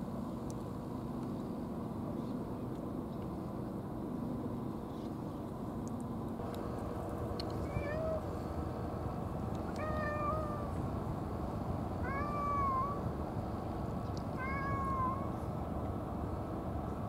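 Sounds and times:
cat meowing: 7.6s - 8.2s, 9.7s - 10.7s, 12.0s - 13.0s, 14.4s - 15.4s.

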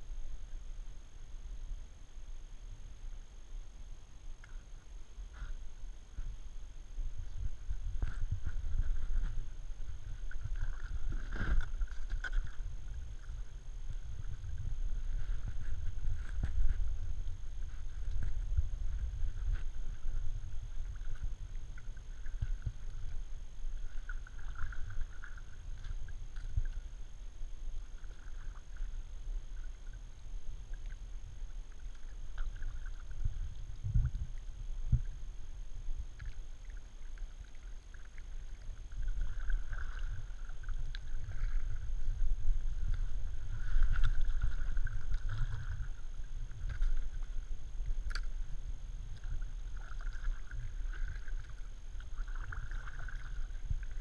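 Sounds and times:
low rumble: 0.0s - 54.0s
paddle splashing in water: 7.3s - 26.8s, 36.2s - 47.4s, 49.2s - 54.0s.

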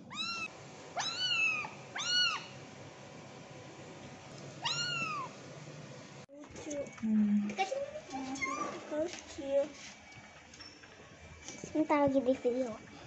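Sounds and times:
kitten meowing: 0.0s - 2.6s, 4.6s - 5.3s.

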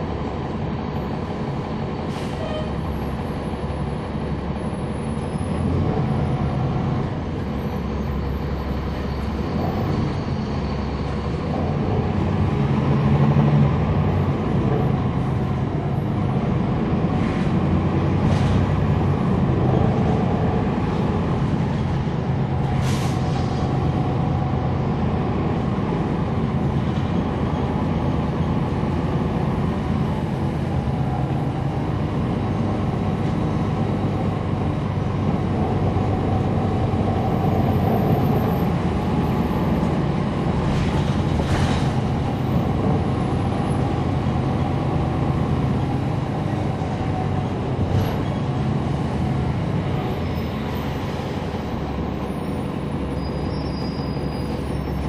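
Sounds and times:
diesel bus engine running: 0.0s - 55.0s
air brake hisses: 22.8s - 23.5s.

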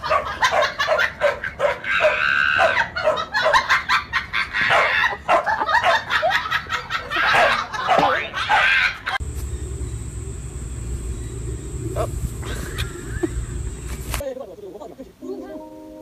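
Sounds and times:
dog barking: 0.0s - 3.8s, 4.7s - 6.1s, 7.3s - 8.9s.

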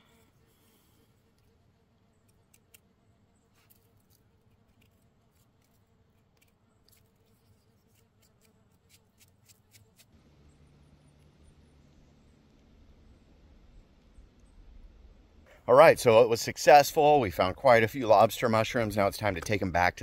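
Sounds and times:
faint low hum: 0.0s - 20.0s
small knife scraping: 3.6s - 10.1s.

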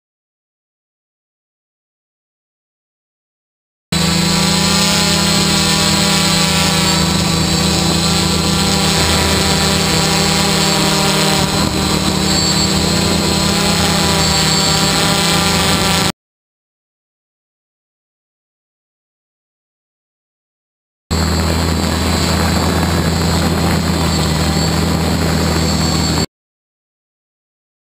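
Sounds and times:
drone propellers buzzing: 4.0s - 16.1s, 21.1s - 26.3s.

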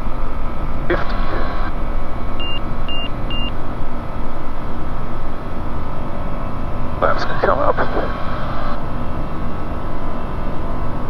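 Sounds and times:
aircraft engine drone: 0.0s - 11.0s
short electronic beeps: 2.4s - 3.6s.

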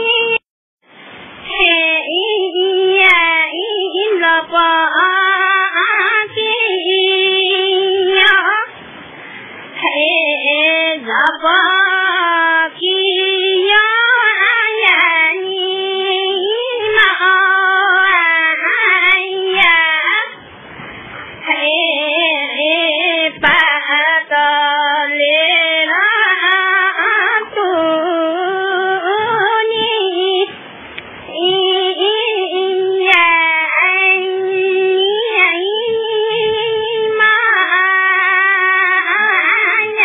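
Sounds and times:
high voice singing slowly: 9.8s - 20.4s, 21.2s - 40.0s.

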